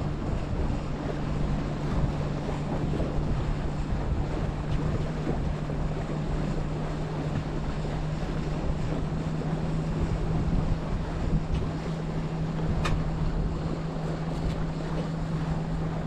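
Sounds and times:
steady low hum: 0.0s - 16.0s
wind buffeting microphone: 0.0s - 16.0s
short tick: 12.8s - 13.0s.

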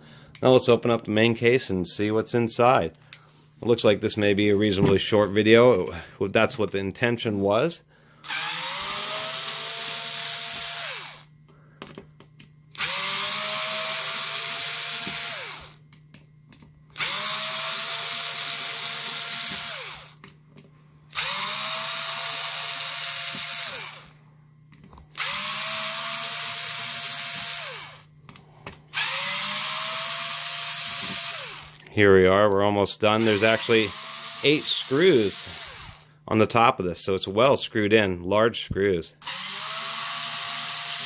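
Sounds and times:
power screwdriver motor whirring: 8.2s - 11.3s, 12.7s - 15.8s, 17.0s - 20.2s, 21.1s - 24.1s, 25.2s - 28.0s, 28.9s - 31.8s, 33.2s - 36.0s, 39.2s - 41.0s.

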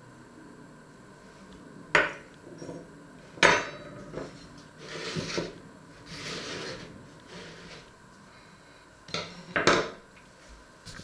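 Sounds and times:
utensils scraping on plate: 3.6s - 7.9s.

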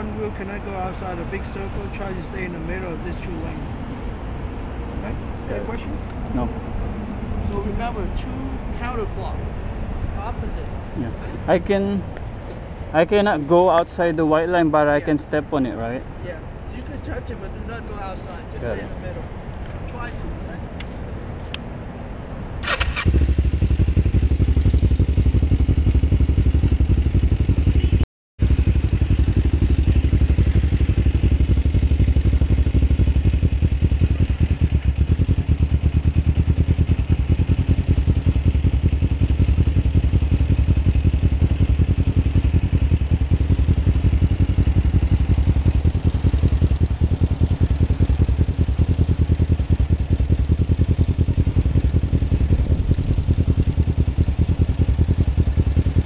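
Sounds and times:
motorcycle engine running: 22.6s - 56.0s.

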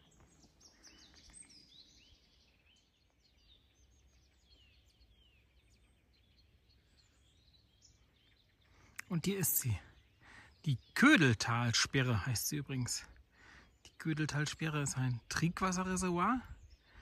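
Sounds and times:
faint birds chirping: 0.0s - 17.0s.

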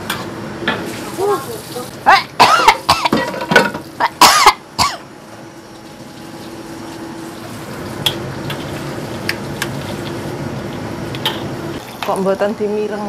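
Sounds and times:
curry simmering hiss: 0.8s - 2.8s
person coughing: 2.4s - 3.2s, 4.0s - 5.0s.

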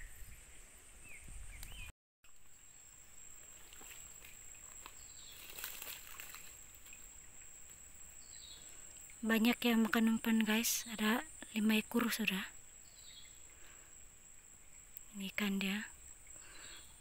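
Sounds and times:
faint bird chirps: 0.0s - 2.9s, 8.2s - 14.0s, 14.6s - 17.0s
fish splashing in a bucket: 3.6s - 7.1s.

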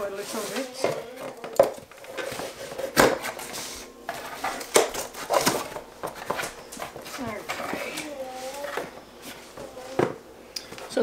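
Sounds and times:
cardboard and packaging rustling: 0.0s - 11.0s.

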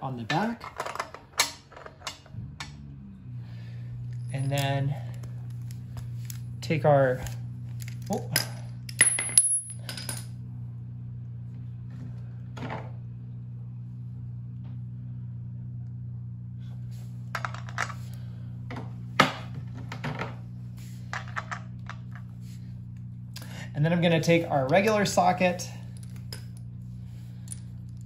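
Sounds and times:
steady low hum: 0.0s - 28.0s
wrench clinking on metal: 4.2s - 5.0s, 7.8s - 10.2s.

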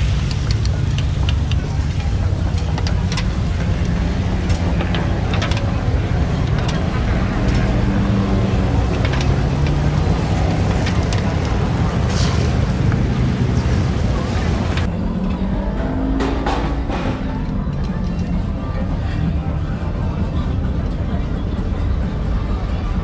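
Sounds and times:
utensils clicking on metal pans: 0.0s - 14.9s
voices: 0.0s - 15.7s.

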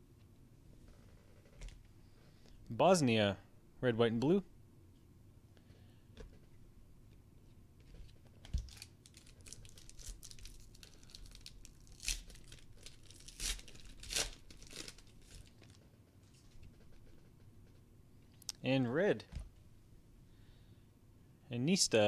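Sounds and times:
foil wrapper tearing and crinkling: 8.6s - 15.8s.

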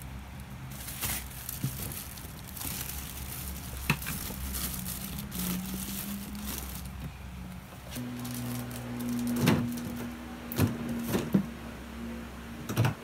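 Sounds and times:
plastic bags crinkling: 0.0s - 10.1s.

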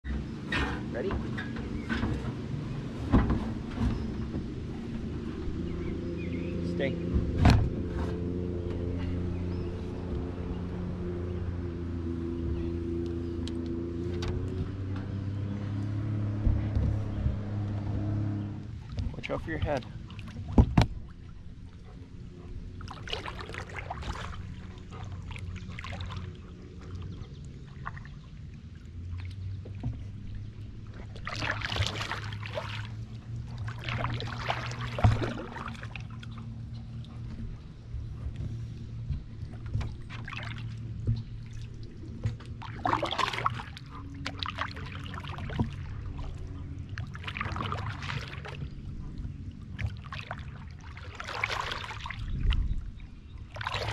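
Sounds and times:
paddle splashing water: 0.0s - 53.9s
steady low rumble: 0.0s - 53.9s.

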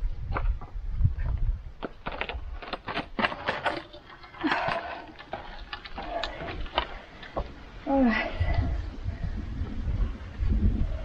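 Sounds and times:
wooden knocks and clatters: 0.3s - 7.6s
wood scraping: 0.5s - 7.6s.

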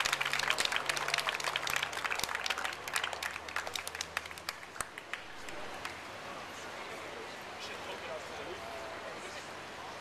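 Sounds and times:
small crowd applauding: 0.0s - 6.0s.

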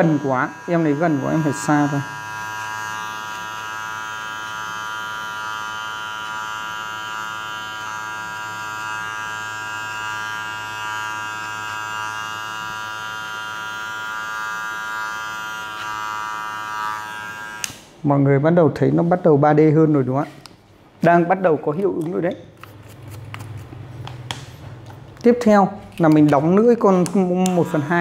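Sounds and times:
electric hair clipper buzzing: 0.0s - 18.0s, 26.0s - 28.0s.

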